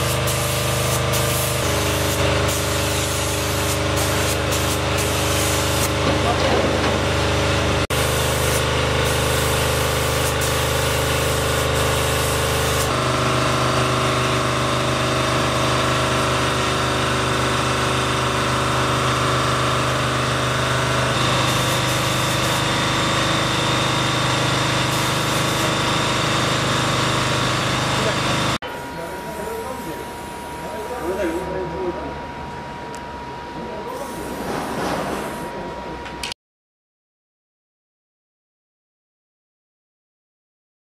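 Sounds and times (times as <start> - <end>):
paint sprayer hum: 0.0 - 31.6.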